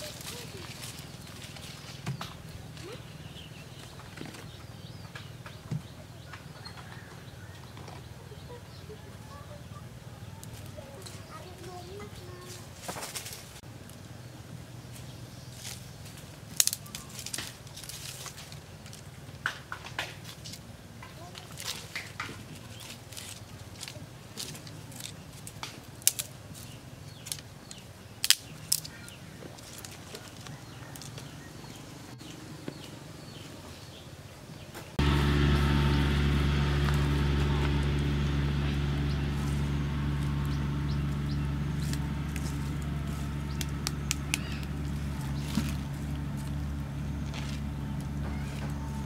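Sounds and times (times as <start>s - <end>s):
dry sticks clicking and cracking: 16.5s - 20.6s, 21.3s - 31.3s, 40.2s - 48.8s
low motor-like drone: 35.0s - 49.0s.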